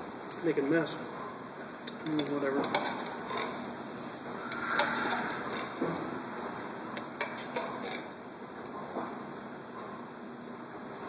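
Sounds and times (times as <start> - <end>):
spoon scraping in a tin can: 4.4 - 5.8.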